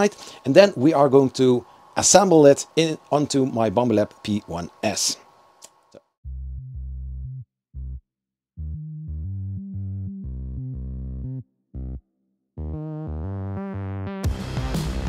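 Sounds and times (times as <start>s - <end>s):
synthesizer music with deep bass: 8.6s - 12.0s, 12.6s - 15.0s.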